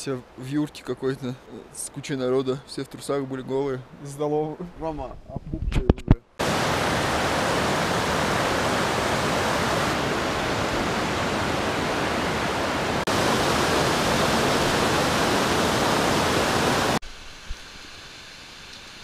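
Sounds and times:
stream rushing over rocks: 6.4 - 18.0.

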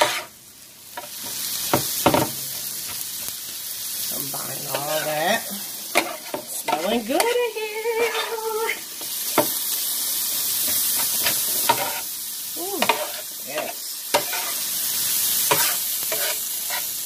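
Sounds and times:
metal spatulas scraping: 0.0 - 0.3, 8.0 - 8.4, 11.0 - 12.0, 14.1 - 14.6, 15.5 - 16.9
food sizzling on a griddle: 0.0 - 17.0
spatula edges clacking on griddle: 5.9 - 7.4, 10.7 - 12.0, 12.8 - 14.6, 15.4 - 17.0.

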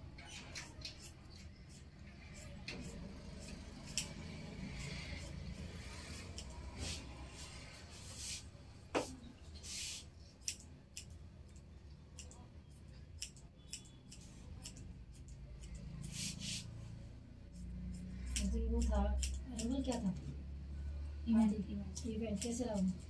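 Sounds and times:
scissors snipping hair: 0.6 - 5.4, 6.1 - 6.7, 10.4 - 16.3, 17.5 - 20.3, 21.4 - 23.0.

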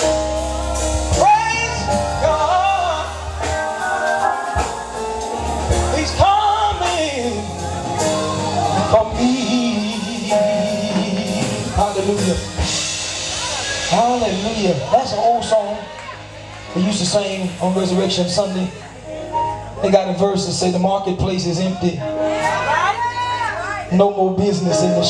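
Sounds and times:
church band with keyboard and drums: 0.0 - 25.0
man singing melismatic runs: 8.7 - 12.7.

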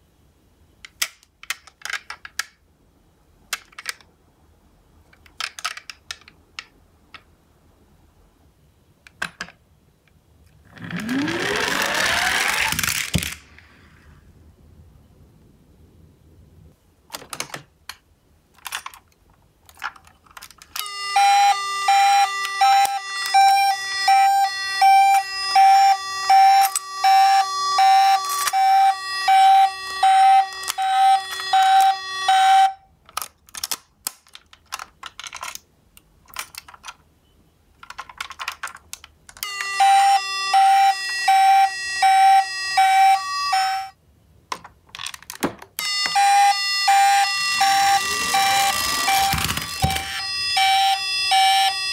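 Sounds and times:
toy cars clattering: 0.9 - 2.6, 3.5 - 4.1, 5.1 - 7.3, 10.5 - 13.6, 17.1 - 23.4, 26.6 - 32.4, 33.0 - 37.1, 37.8 - 39.8, 44.5 - 46.2, 47.2 - 51.2
toy siren two-tone wail: 10.8 - 12.8, 20.8 - 32.9, 39.4 - 44.0, 45.8 - 51.9.

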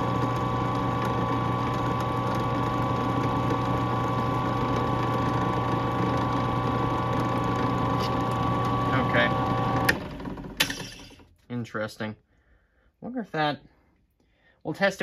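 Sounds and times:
drill press motor hum: 0.0 - 11.3.

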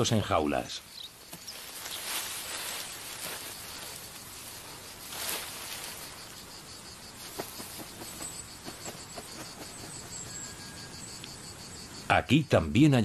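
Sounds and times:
insects trilling: 0.0 - 13.0
rustling: 1.1 - 10.1.

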